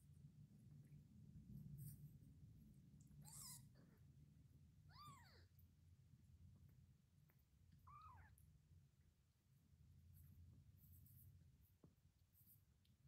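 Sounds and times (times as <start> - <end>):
kittens mewing: 3.2 - 3.8, 4.9 - 5.6.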